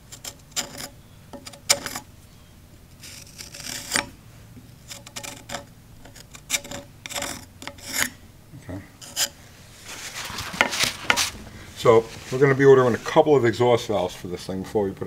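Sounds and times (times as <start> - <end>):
screwdriver scraping metal: 0.0 - 2.1, 3.0 - 4.1, 4.8 - 8.2, 9.0 - 9.4.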